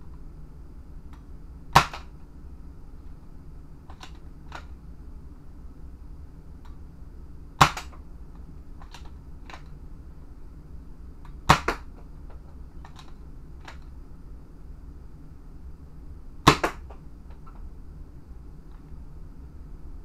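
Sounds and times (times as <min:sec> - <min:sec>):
toy blaster shot snap: 0:01.8 - 0:02.1, 0:07.6 - 0:08.0, 0:11.5 - 0:11.8, 0:16.5 - 0:16.8.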